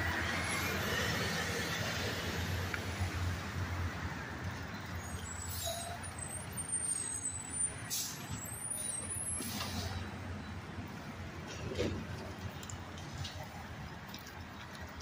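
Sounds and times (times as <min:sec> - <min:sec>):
air brake hisses: 0:07.8 - 0:10.0.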